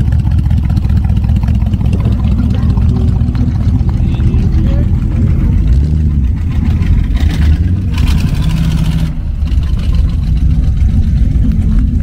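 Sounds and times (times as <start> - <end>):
car engine exhaust rumble: 0.0 - 12.0.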